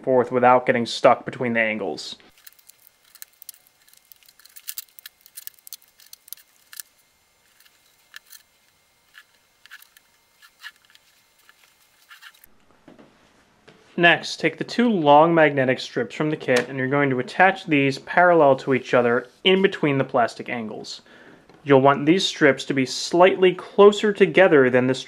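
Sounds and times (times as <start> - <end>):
tape dispenser clicks and scrapes: 2.3 - 12.5.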